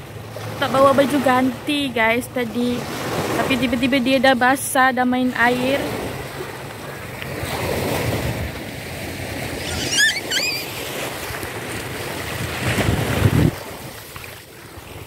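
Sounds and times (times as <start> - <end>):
waves breaking on shore: 0.0 - 15.0
wind buffeting microphone: 5.7 - 14.0
high-pitched squeal: 9.6 - 10.8.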